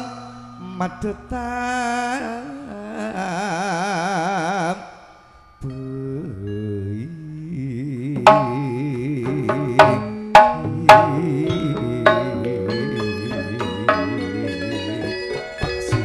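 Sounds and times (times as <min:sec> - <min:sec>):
wavering sustained melody: 0:00.0 - 0:16.0
struck percussion: 0:08.1 - 0:16.0
sharp ringing strikes: 0:08.2 - 0:14.8.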